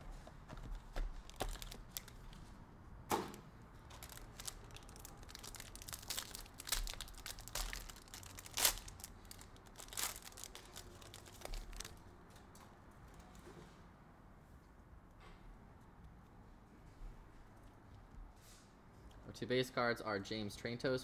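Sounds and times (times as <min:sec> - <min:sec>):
foil pack crinkling and tearing: 0:00.7 - 0:02.5, 0:03.9 - 0:12.0.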